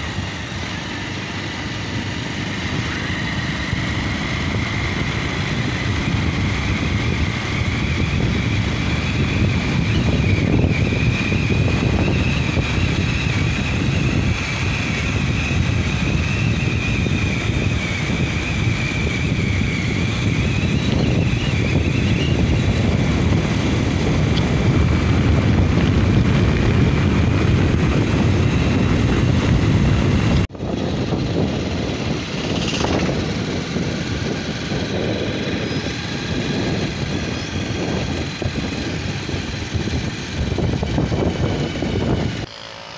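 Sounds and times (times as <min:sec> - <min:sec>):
wind rush on microphone: 0:00.0 - 0:42.5
motorcycle engine drone: 0:00.0 - 0:42.9
road noise: 0:00.0 - 0:42.9
thin wavering whistle: 0:18.5 - 0:22.8.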